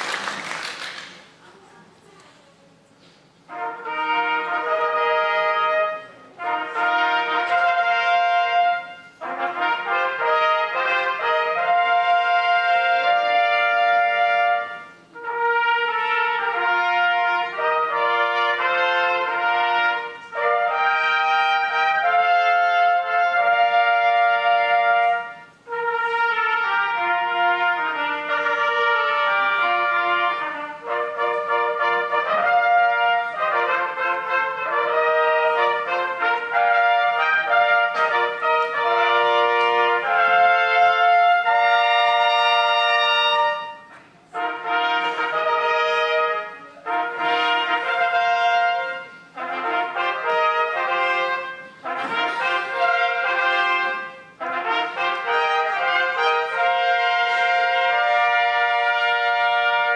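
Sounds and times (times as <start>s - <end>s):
wind band playing: 0.0s - 1.2s, 3.0s - 59.9s
trumpets and trombones: 3.0s - 59.9s.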